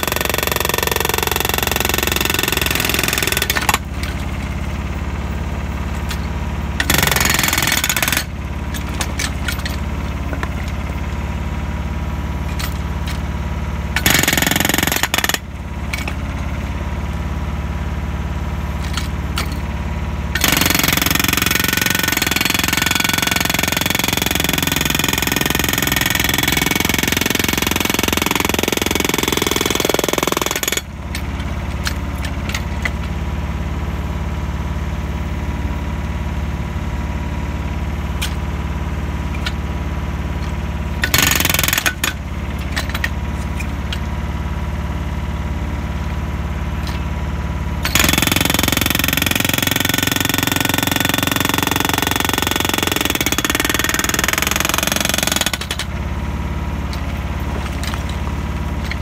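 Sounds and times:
hydraulic breaker hammering rock: 0.0s - 4.6s, 5.9s - 11.2s, 12.4s - 13.3s, 14.0s - 16.5s, 18.8s - 19.7s, 20.3s - 33.1s, 40.4s - 44.1s, 47.8s - 56.0s
excavator engine running: 0.0s - 59.0s.

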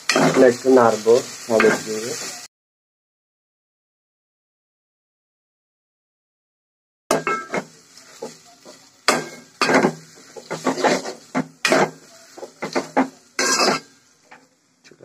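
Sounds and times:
metal spoon scraping a pot: 9.2s - 14.0s.

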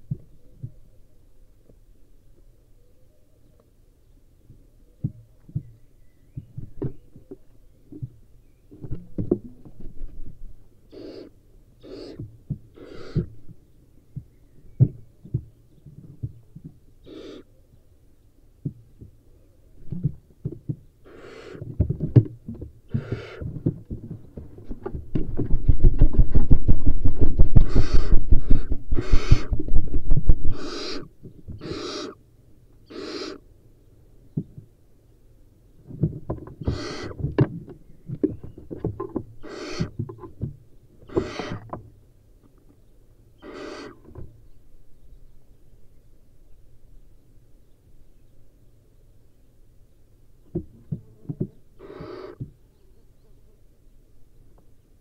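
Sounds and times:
owlets hissing calls: 10.9s - 13.4s, 17.0s - 17.5s, 21.0s - 21.6s, 22.9s - 23.5s, 27.6s - 29.6s, 30.4s - 32.2s, 32.8s - 33.4s, 36.6s - 37.2s, 39.4s - 40.0s, 41.1s - 41.6s, 43.4s - 44.1s, 51.8s - 52.4s
wing flapping and scuffling: 21.6s - 30.5s.

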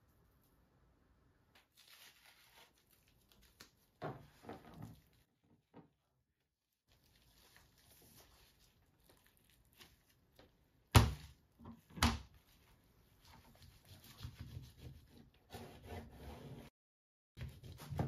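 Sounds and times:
seaweed sheet crinkling: 1.6s - 3.9s, 6.9s - 10.4s.

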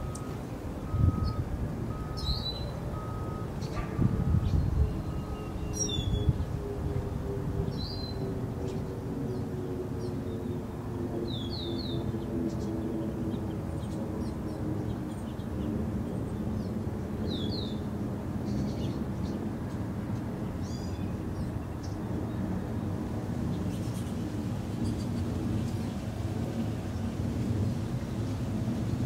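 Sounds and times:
birds chirping: 0.0s - 6.6s.

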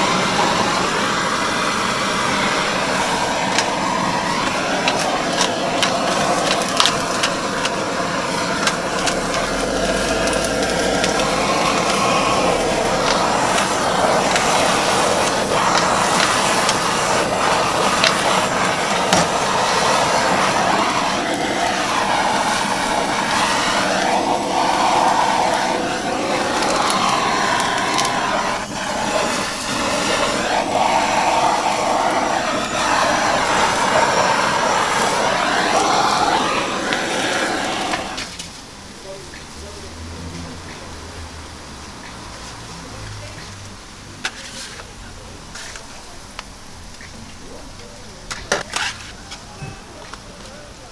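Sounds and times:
meat and onions sizzling on griddle: 0.0s - 38.6s
gas blowtorch roaring: 0.0s - 40.8s.

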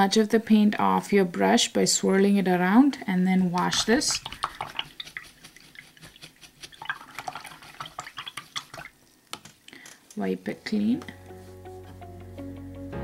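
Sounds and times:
paintbrush swishing in water: 3.6s - 8.9s
small water splashes: 3.7s - 9.0s.

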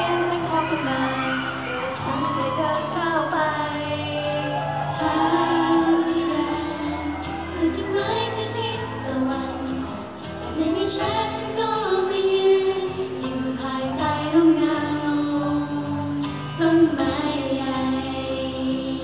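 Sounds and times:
instrumental backing music: 0.0s - 19.0s
woman singing into microphone: 0.0s - 19.0s.

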